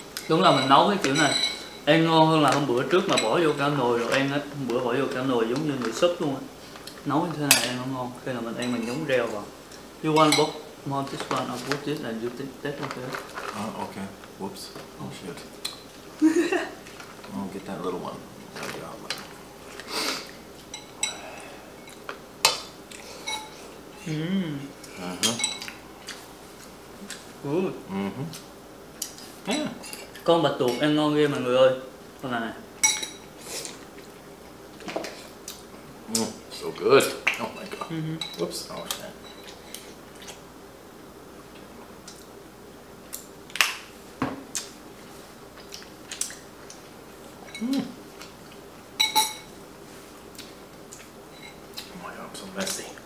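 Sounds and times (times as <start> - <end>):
faint steady hum: 0.0 - 53.0
utensils clinking against bowls: 0.2 - 4.3, 10.1 - 11.9, 21.8 - 24.1, 25.2 - 25.8, 32.8 - 33.3, 49.0 - 49.5
person humming: 24.0 - 25.3, 27.8 - 28.4, 47.6 - 48.0.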